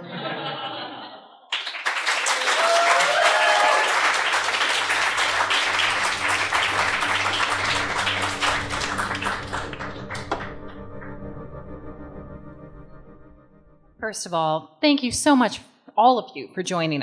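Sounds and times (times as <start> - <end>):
audience applause: 1.5 - 11.2.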